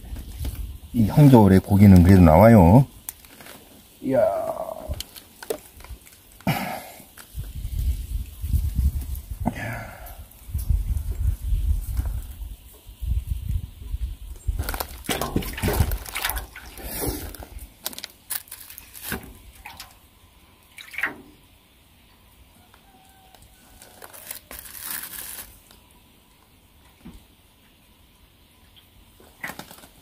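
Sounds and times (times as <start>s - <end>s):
handling rustles and clicks: 14.6s - 19.3s.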